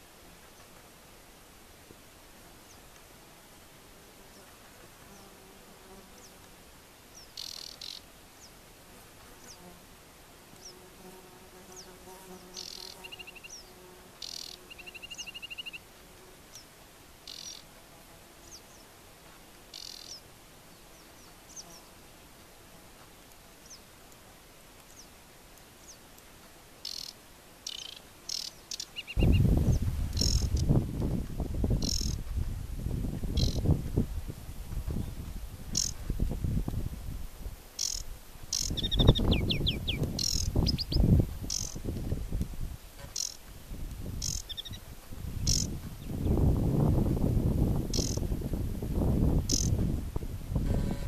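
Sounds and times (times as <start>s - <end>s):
bird singing high notes and trills: 7.2s - 8.0s, 12.5s - 15.8s, 17.3s - 17.7s, 19.7s - 20.2s, 26.8s - 30.6s, 33.3s - 33.6s, 37.8s - 41.8s, 45.4s - 46.4s, 47.9s - 48.2s.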